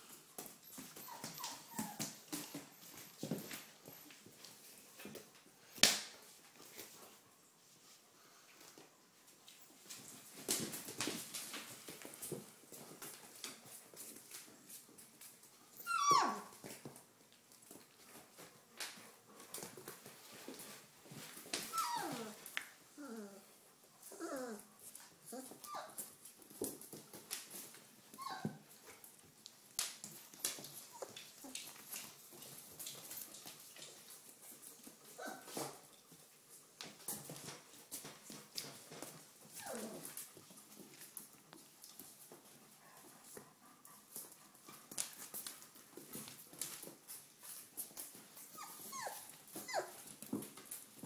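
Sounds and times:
puppy whimpering: 0.7s - 3.0s, 15.8s - 16.6s, 21.6s - 23.5s, 24.1s - 24.7s, 25.3s - 26.0s, 28.2s - 28.7s, 35.1s - 35.5s, 39.5s - 40.2s, 48.4s - 50.0s.

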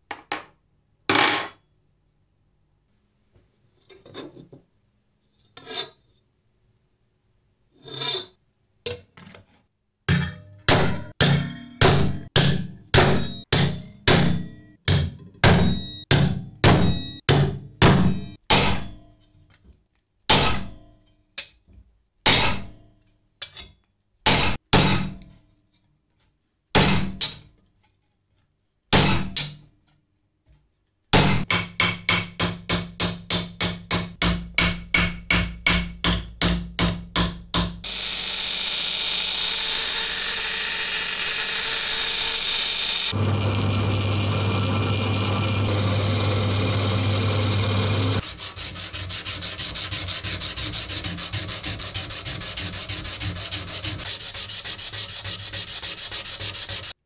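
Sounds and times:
drill motor humming: 37.9s - 49.1s.

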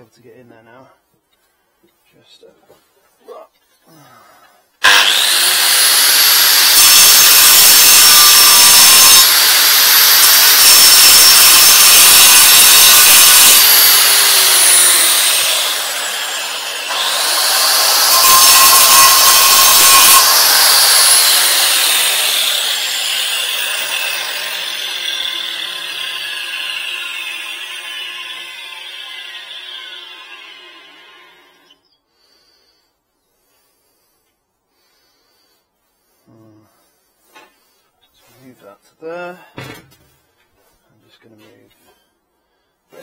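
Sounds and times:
grinder disc cutting concrete: 4.8s - 31.7s
angle grinder whining: 4.8s - 31.9s.

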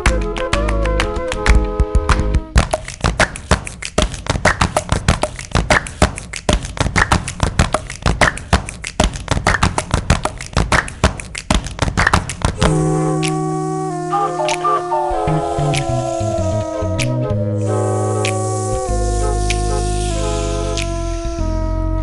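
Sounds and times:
fast percussion music: 0.0s - 13.5s
held music chord: 12.6s - 22.0s.

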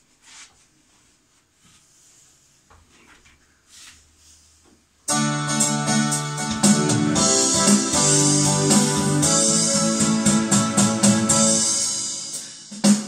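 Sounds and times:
electronic keyboard piano melody: 5.1s - 12.9s.

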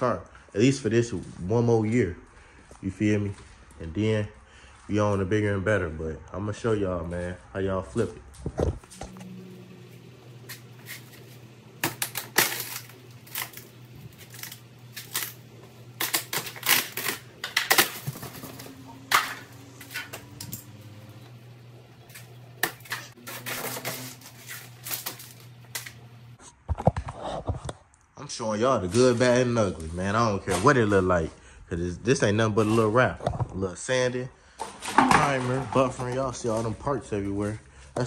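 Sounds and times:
steady low hum: 8.7s - 26.4s
fiberglass cracking and snapping: 11.8s - 20.8s, 24.0s - 26.0s.

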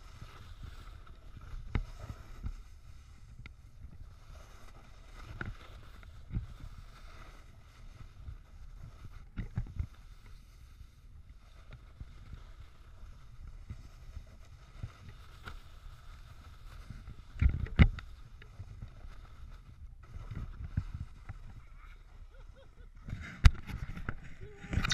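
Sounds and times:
snowboard scraping over snow: 0.0s - 17.4s
wind rumbling on microphone: 0.0s - 24.9s.

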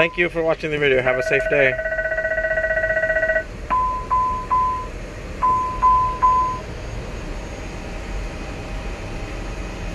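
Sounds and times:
fast ringing bell alarm: 1.0s - 4.1s
short warning chimes: 1.0s - 6.6s.

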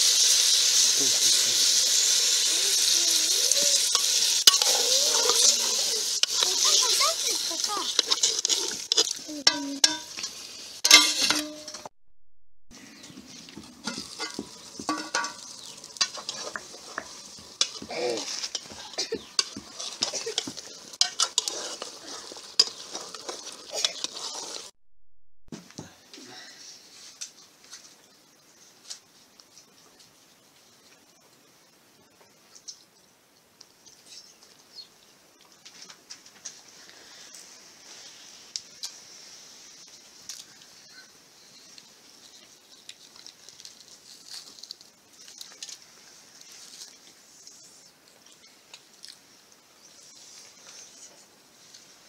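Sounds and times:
steady high-pitched hiss: 0.0s - 11.8s, 12.8s - 24.7s, 25.7s - 52.0s
frying sizzle: 0.0s - 11.9s, 13.0s - 24.8s
metal spoon scraping a pot: 3.7s - 6.7s, 7.8s - 11.9s, 13.8s - 24.7s.

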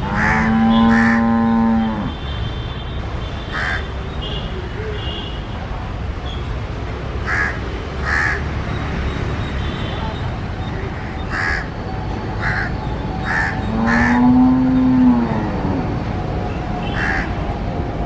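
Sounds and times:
crows cawing: 0.1s - 1.4s, 3.5s - 3.9s, 7.2s - 8.5s, 11.0s - 11.7s, 12.4s - 14.3s, 16.9s - 17.3s.

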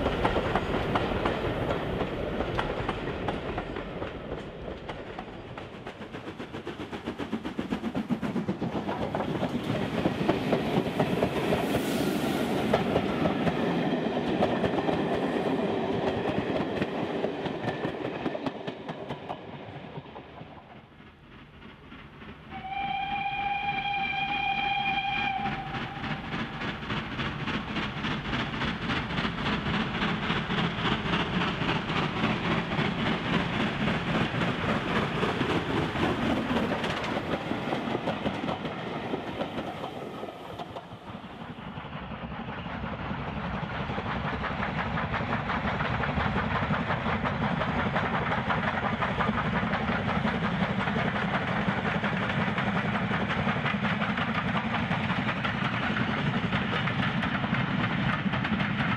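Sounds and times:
steam locomotive exhaust beat: 0.0s - 58.9s
wheel and rail clatter: 25.3s - 58.9s.

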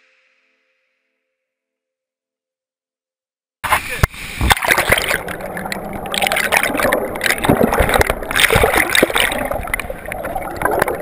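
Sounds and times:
river water rushing over pebbles: 4.4s - 11.0s.

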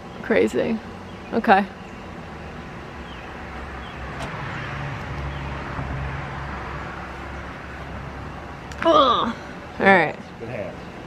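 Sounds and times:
road vehicle passing: 0.0s - 11.0s.

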